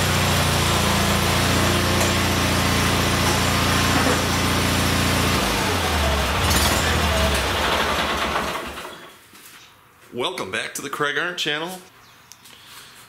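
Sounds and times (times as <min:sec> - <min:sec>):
garden tractor engine running: 0:00.0 - 0:09.1.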